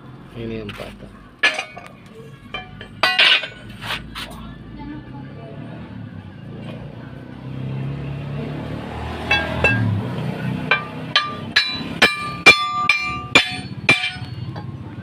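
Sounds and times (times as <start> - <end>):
hammer striking steel punch: 9.3 - 10.0, 10.7 - 14.4.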